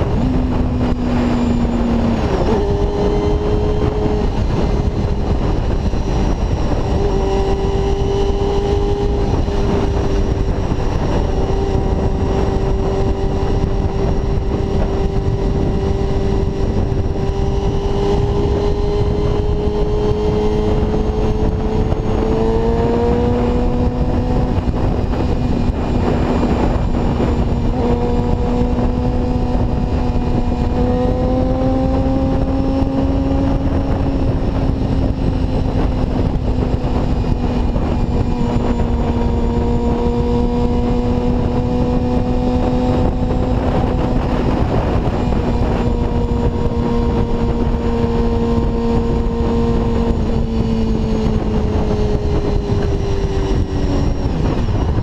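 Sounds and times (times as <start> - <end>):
motorcycle engine at high revs: 0.0 - 55.0
wind noise: 0.0 - 55.0.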